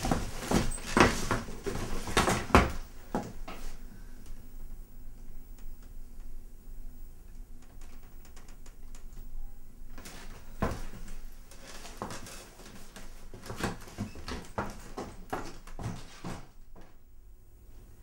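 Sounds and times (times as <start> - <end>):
knocks clatter and rustling: 0.0 - 2.8.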